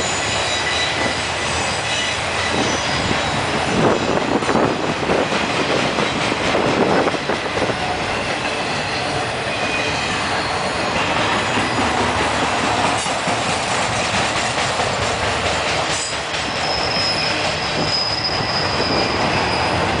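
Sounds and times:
high wheel squeal: 0.0s - 4.6s, 7.7s - 12.0s, 15.9s - 20.0s
train wheels rumbling on rail: 0.0s - 20.0s.

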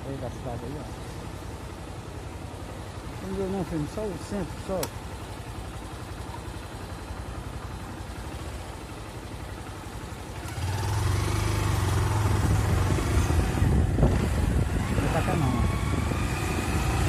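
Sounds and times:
vehicle engine pulling away: 9.5s - 17.0s.

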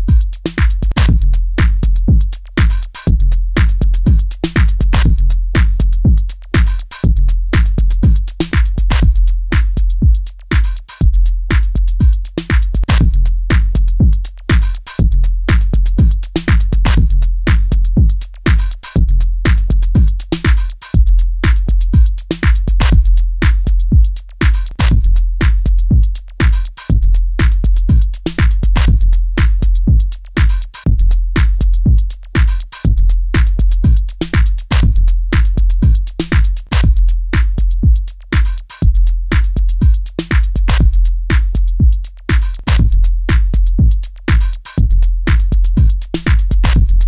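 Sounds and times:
drum machine kick drums: 0.0s - 47.0s
fast hi-hat ticks: 0.0s - 47.0s.

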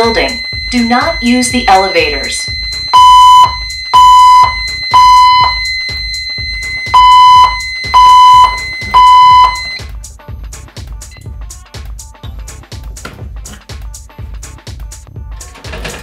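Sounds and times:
fire alarm beeps: 0.0s - 9.9s.

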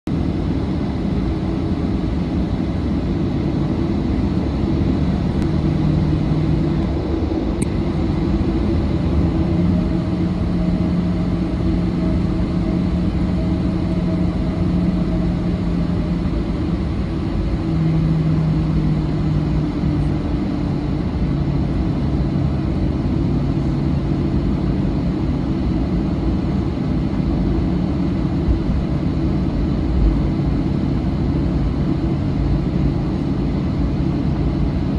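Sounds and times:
airplane cabin engine rumble: 0.1s - 34.9s
low hums shifting in pitch: 4.9s - 23.9s.

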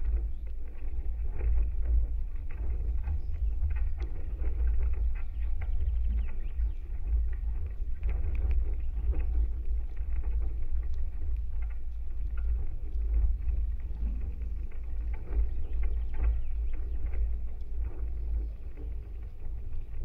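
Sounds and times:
deep rumble of structure vibration: 0.0s - 20.0s
small ticks: 0.0s - 20.0s.

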